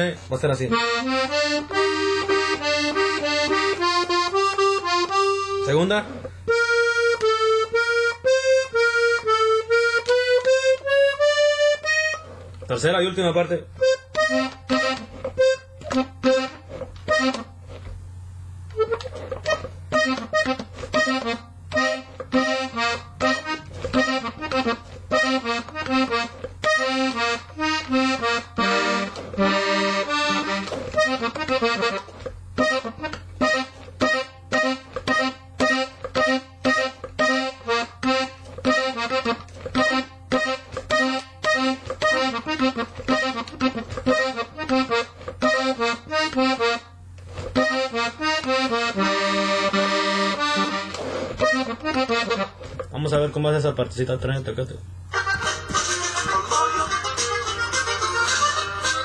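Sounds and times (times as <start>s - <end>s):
button accordion melody: 0.0s - 17.9s, 18.7s - 53.4s, 55.1s - 59.0s.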